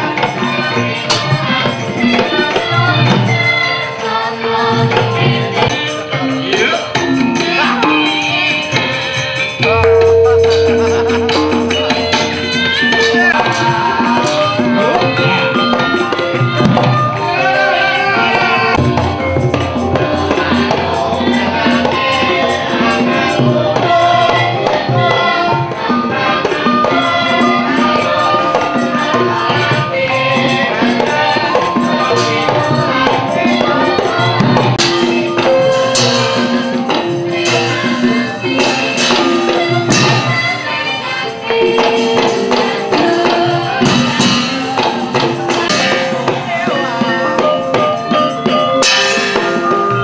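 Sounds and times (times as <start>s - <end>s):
men singing: 0.0s - 50.0s
drum: 4.6s - 40.9s, 41.6s - 50.0s
metallophones and gong-chimes: 5.9s - 17.7s, 31.4s - 40.8s, 41.7s - 50.0s.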